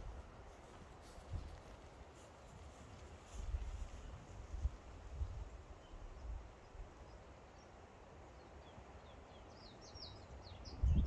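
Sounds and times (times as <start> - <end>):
bird chirping: 8.4 - 11.0.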